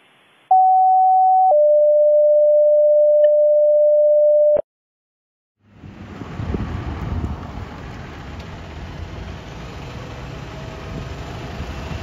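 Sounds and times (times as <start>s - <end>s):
two-tone paging tones: 0.5s - 4.6s
street and vehicle noise: 5.6s - 12.0s.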